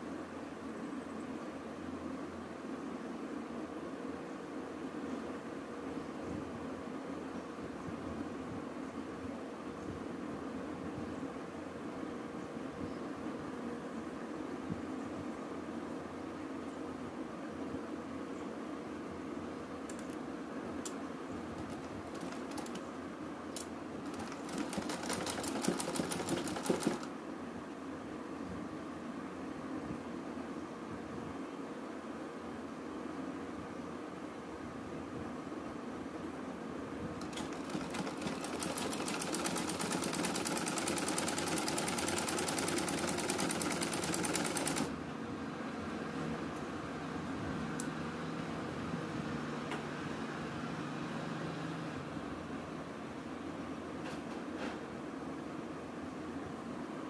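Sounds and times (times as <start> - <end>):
steady background hum: 0.0 - 57.0
sewing machine stitching clicks: 21.6 - 22.8, 23.6 - 27.1, 37.2 - 44.9.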